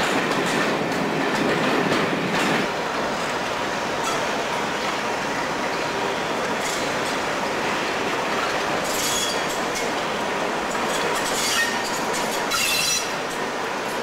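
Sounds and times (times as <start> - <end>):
train wheels rumbling on rails: 0.0 - 14.0
high-pitched wheel squeals: 8.9 - 9.4, 11.3 - 13.2.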